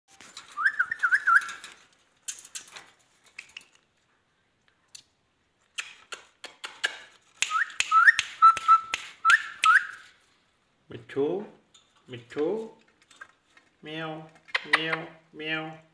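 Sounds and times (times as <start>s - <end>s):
sharp clicks and rattles: 0.2s - 3.9s.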